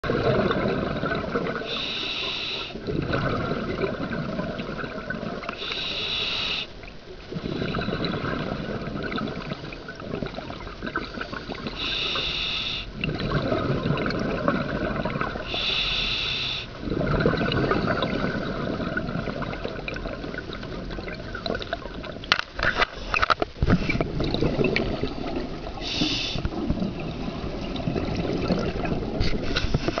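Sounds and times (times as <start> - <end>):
exhaled bubbles rushing: 0.0 - 1.8, 2.8 - 5.6, 7.2 - 11.9, 12.9 - 15.6, 16.7 - 22.3, 23.6 - 30.0
regulator hissing inhales: 1.7 - 2.8, 5.6 - 6.7, 11.8 - 12.9, 15.5 - 16.7, 25.8 - 26.5.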